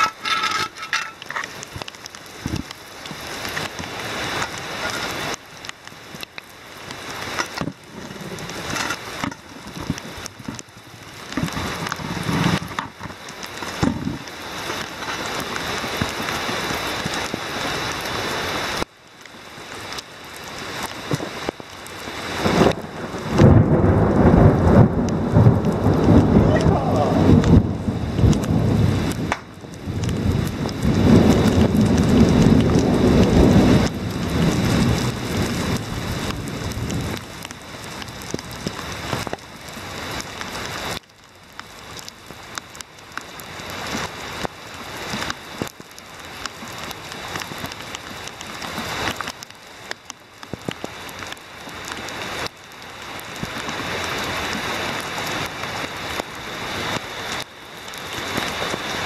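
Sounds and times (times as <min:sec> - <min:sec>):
heavy rain on pavement: 0:00.0 - 0:59.0
thunder rumbling: 0:22.3 - 0:39.0.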